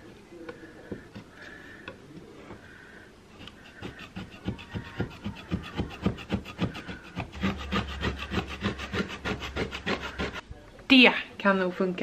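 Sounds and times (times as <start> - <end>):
scraping paint off wooden stair: 3.4 - 10.4.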